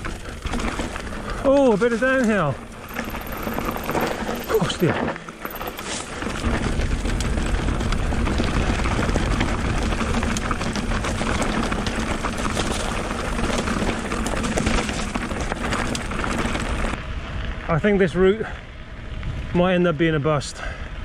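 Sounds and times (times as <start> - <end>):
bike clicks and rattles: 0.0 - 17.0
bike tyres rolling on dirt: 0.0 - 21.0.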